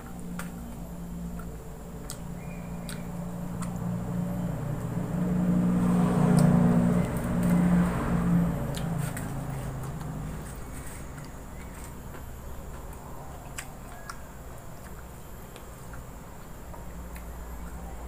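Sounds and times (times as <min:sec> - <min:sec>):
vehicle engine running: 0:00.0 - 0:13.3.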